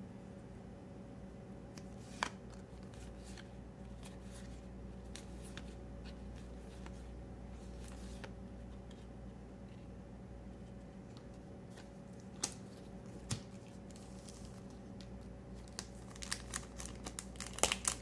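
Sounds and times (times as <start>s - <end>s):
cards sliding and rustling: 1.8s - 9.9s.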